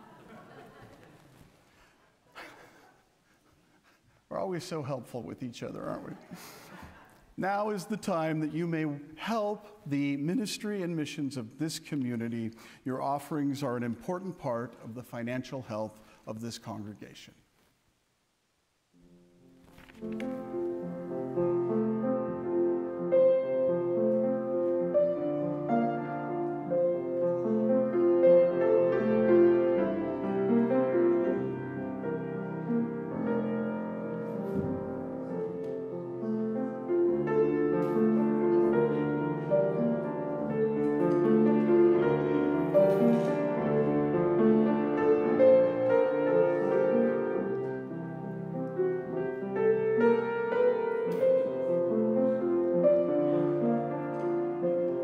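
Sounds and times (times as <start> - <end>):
piano music: 19.0 - 55.0.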